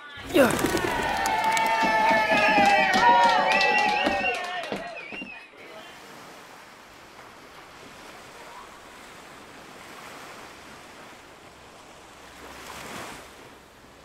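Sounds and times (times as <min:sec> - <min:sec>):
wind: 0:00.0 - 0:14.0
ocean waves washing in: 0:05.6 - 0:14.0.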